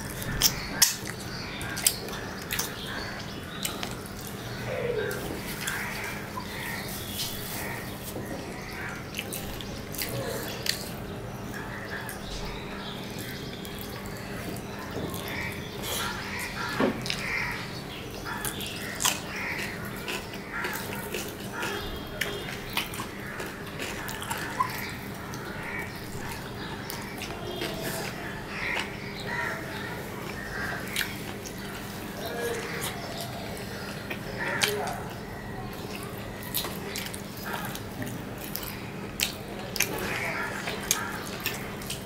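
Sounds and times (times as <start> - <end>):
wet chewing and lip smacking: 18.3 - 29.0, 32.6 - 42.0.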